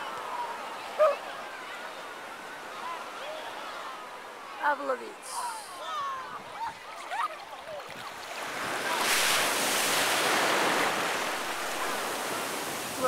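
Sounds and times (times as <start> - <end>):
ocean wave washing in: 8.1 - 13.0.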